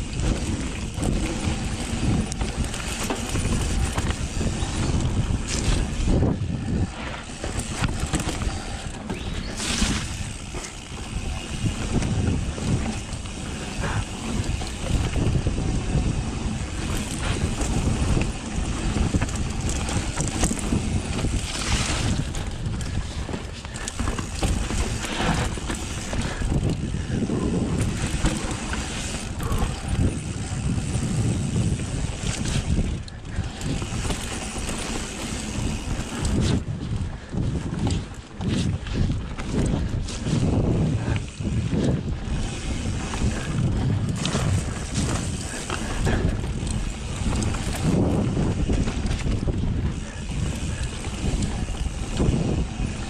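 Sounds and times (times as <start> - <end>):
mountain bike rumbling and rattling: 0.0 - 53.0
wind buffeting microphone: 0.0 - 53.0.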